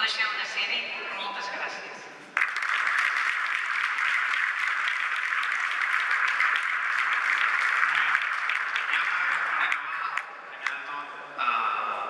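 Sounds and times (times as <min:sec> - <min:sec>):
audience applauding: 0:02.4 - 0:10.8.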